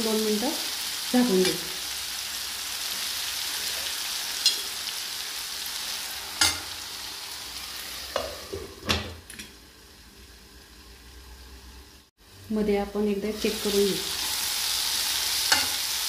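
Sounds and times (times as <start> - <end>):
vegetables sizzling in a pan: 0.0 - 16.0.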